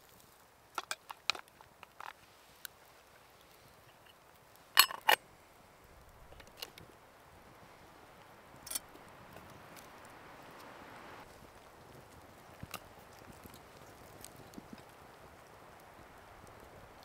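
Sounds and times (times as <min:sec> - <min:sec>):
faint campfire crackling: 0:00.0 - 0:17.0
metal kettle lid clinks: 0:04.8 - 0:05.2.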